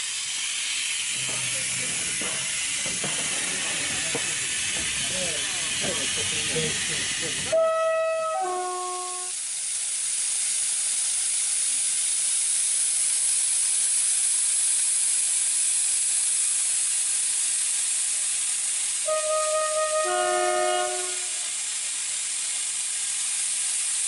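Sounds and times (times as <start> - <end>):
compressed air hissing: 0.0 - 24.0.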